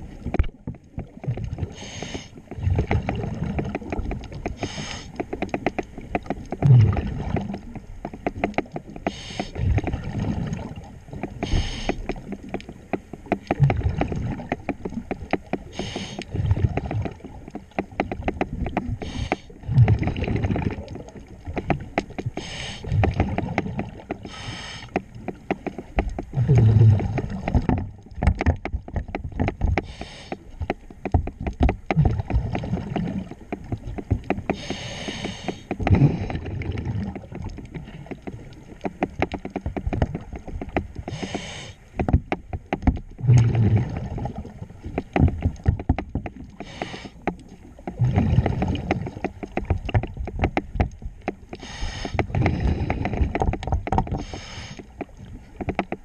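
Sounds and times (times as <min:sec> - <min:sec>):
light clicks and knocks: 0:00.1 - 0:26.4, 0:27.0 - 0:43.4, 0:44.0 - 0:56.0
exhaust bubbles rumbling: 0:02.6 - 0:04.7, 0:06.6 - 0:07.6, 0:09.6 - 0:11.0, 0:13.6 - 0:14.5, 0:19.6 - 0:21.2, 0:26.3 - 0:28.0, 0:31.9 - 0:33.3, 0:35.8 - 0:38.6, 0:43.1 - 0:45.8, 0:47.9 - 0:49.2
regulator hiss on inhalation: 0:24.3 - 0:24.9, 0:29.9 - 0:30.4, 0:41.1 - 0:41.8, 0:51.6 - 0:52.2, 0:54.2 - 0:54.8.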